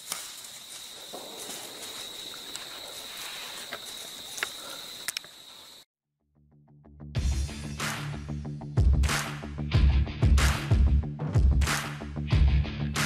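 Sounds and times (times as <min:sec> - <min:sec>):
soft outdoor hiss: 0:00.0 - 0:05.8
insect trill: 0:00.0 - 0:05.9
faint clicks: 0:03.6 - 0:05.4
music: 0:06.2 - 0:13.0.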